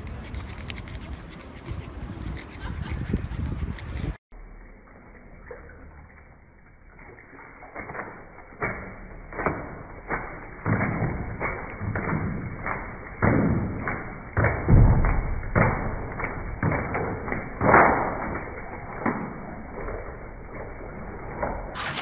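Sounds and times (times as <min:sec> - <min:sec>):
dog thumping against bathtub: 0:09.4 - 0:19.2.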